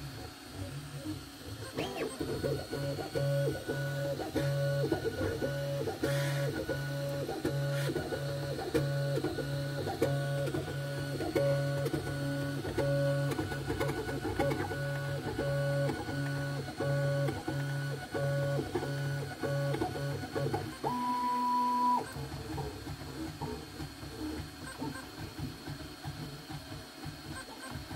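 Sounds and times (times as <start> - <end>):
stepper motors humming: 0.0 - 21.1.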